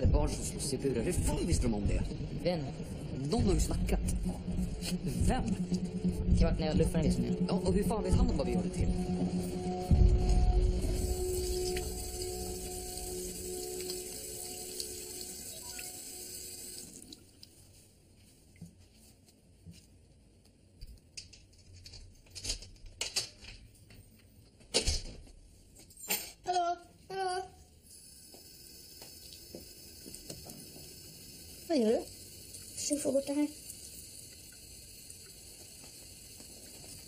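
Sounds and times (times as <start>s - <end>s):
background music: 0.0s - 17.0s.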